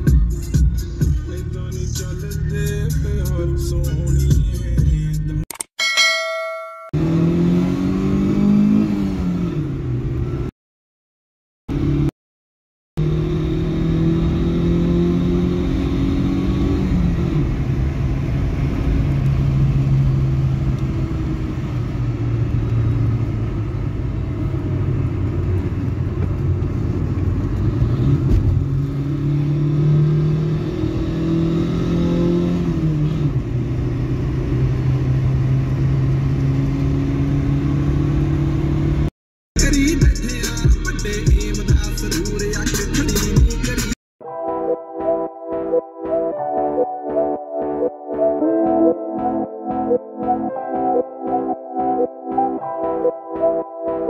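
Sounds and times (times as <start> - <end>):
car engine revving inside cabin: 7.0 - 10.5, 11.7 - 12.1, 13.0 - 39.1.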